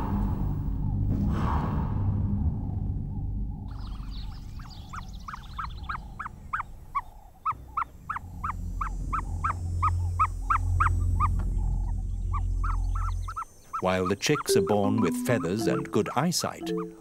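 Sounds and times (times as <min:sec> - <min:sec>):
low steady rumble: 0:00.0 - 0:13.6
chicks peeping: 0:03.7 - 0:17.0.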